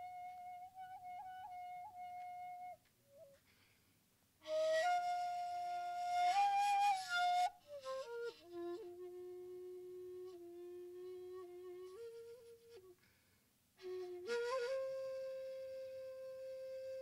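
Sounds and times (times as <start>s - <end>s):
bamboo flute melody: 0.0s - 3.5s, 4.4s - 13.0s, 13.8s - 17.0s.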